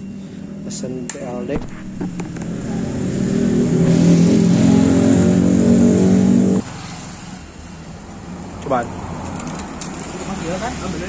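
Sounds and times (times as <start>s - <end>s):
vehicle engine humming: 0.0s - 6.6s.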